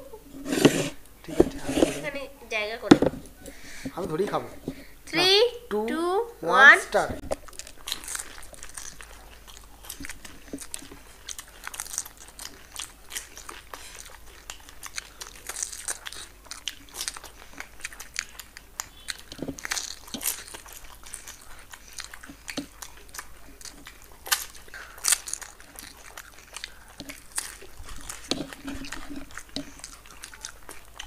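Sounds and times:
crunching and chewing: 7.2s - 31.0s.

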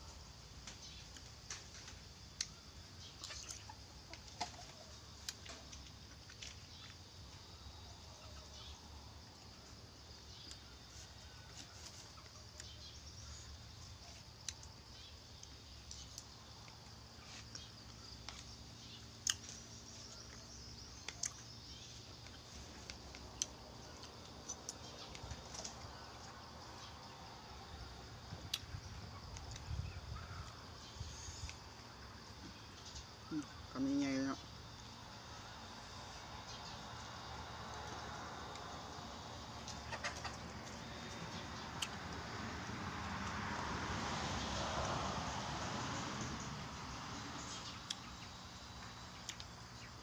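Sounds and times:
chewing: 19.2s - 19.6s
chicken clucking: 39.6s - 40.8s.

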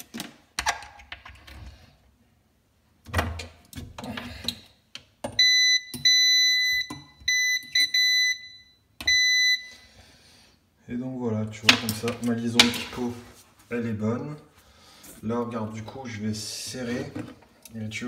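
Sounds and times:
multimeter continuity beeps: 5.4s - 9.8s.

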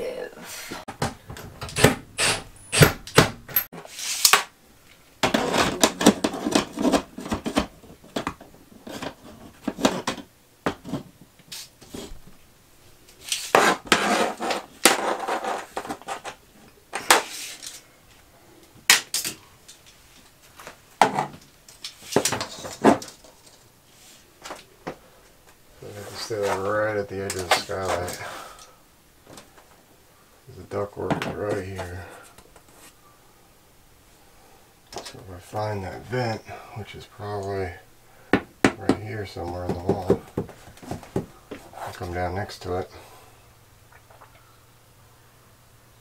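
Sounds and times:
scraping and rattling: 13.2s - 16.4s.

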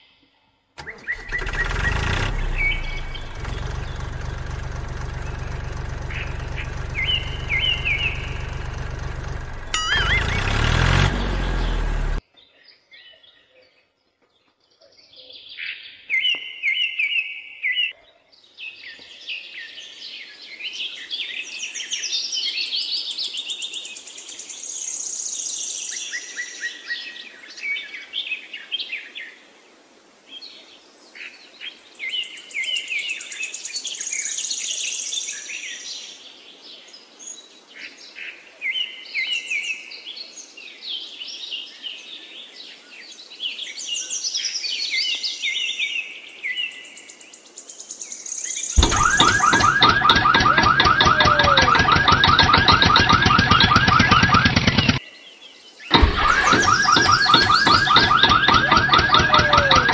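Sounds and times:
birds chirping and trilling: 0.9s - 22.6s, 45.0s - 59.9s.

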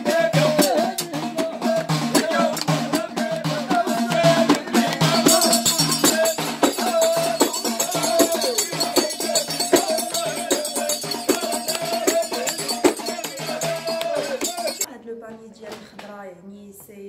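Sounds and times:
hand drums beating: 0.0s - 14.9s
jingling rattles: 5.2s - 14.9s.

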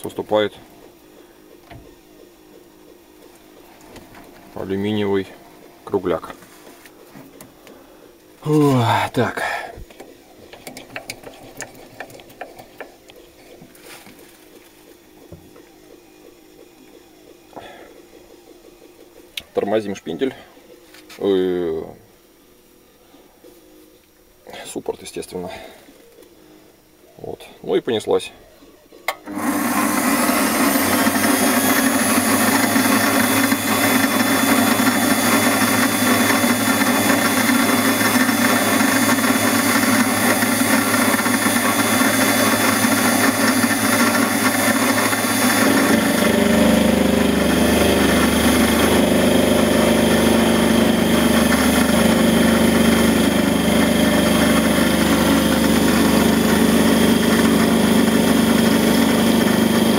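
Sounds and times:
lathe motor hum: 29.2s - 59.9s
metal cutting whine: 29.3s - 59.9s.

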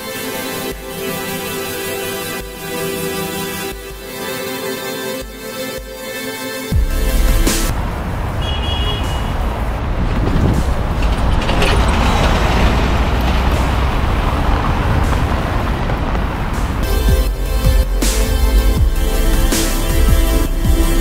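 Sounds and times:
street traffic rumble: 6.7s - 21.0s.

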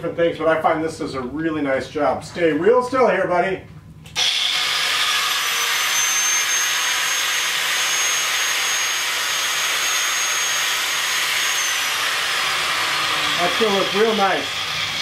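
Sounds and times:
angle grinder whining: 4.2s - 15.0s.

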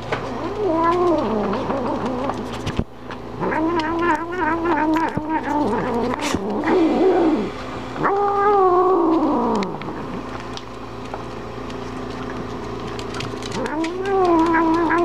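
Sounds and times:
cat growling yowl: 0.3s - 2.6s, 3.4s - 10.2s, 13.5s - 15.0s
cat eating dry food clicks: 9.6s - 15.0s.

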